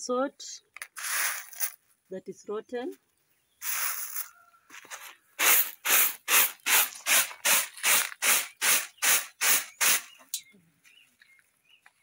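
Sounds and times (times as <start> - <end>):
grain rattling in winnowing basket: 3.6 - 4.3.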